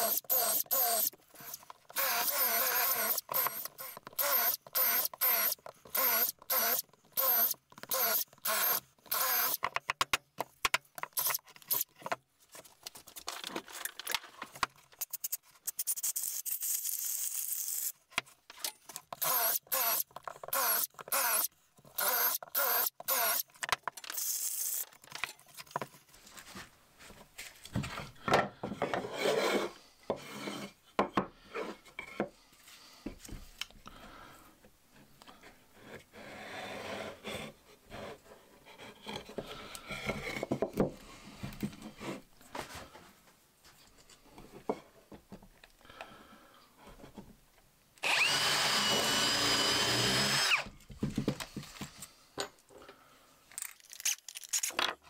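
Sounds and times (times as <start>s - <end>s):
cordless drill boring wood: 0.0s - 9.6s, 19.2s - 23.4s, 48.0s - 50.7s.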